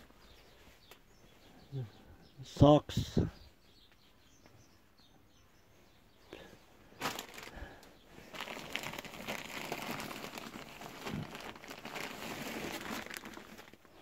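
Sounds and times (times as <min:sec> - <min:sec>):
wrapping paper crinkling: 0:07.0 - 0:14.0.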